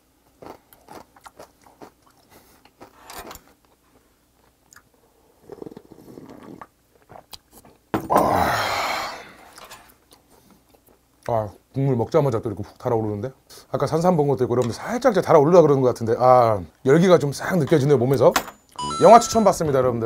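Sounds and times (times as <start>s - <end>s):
chewing and mouth clicks: 0.4s - 4.9s, 7.0s - 7.8s
slurping hot broth: 5.4s - 6.6s
breathy satisfied exhale: 8.2s - 9.6s.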